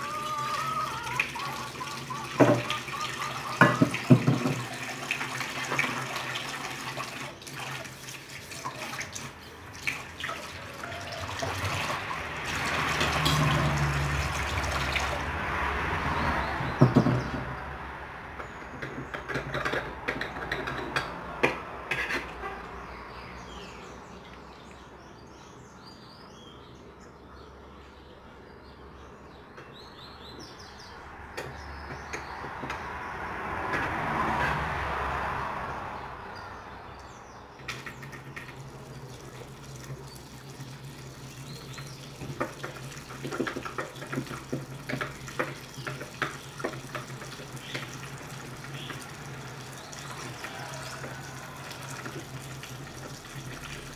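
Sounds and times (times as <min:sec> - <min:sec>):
birds chirping: 0:00.0 - 0:05.0, 0:21.8 - 0:52.0
tap water running and splashing: 0:00.0 - 0:17.6, 0:37.6 - 0:53.9
knocks and clatter at sink: 0:02.4 - 0:02.8, 0:03.5 - 0:04.9, 0:16.7 - 0:17.6, 0:18.4 - 0:22.3, 0:41.7 - 0:48.0.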